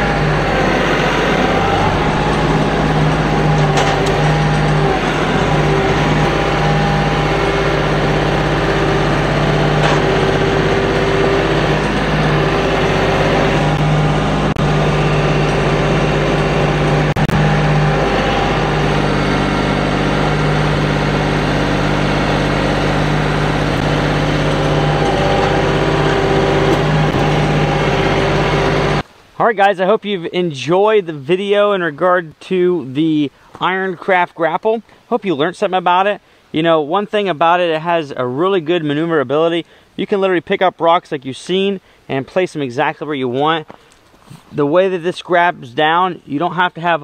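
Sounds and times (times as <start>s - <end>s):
tractor diesel engine running: 0.0s - 29.1s.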